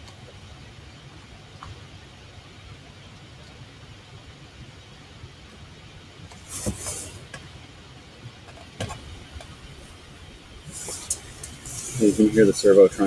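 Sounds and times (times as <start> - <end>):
low steady hum: 0.0 - 13.0
rustling from handling: 6.3 - 7.4, 10.6 - 12.6.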